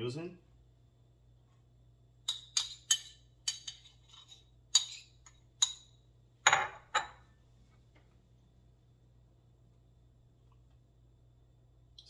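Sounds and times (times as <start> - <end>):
metal spoon clinking on bowl: 2.2 - 7.2.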